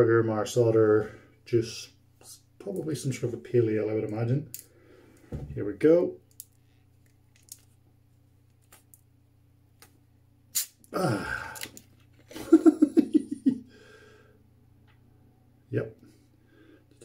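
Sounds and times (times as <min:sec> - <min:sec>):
carbonation hissing: 0:10.5 - 0:11.7
man making quick vocal sounds: 0:10.9 - 0:11.6.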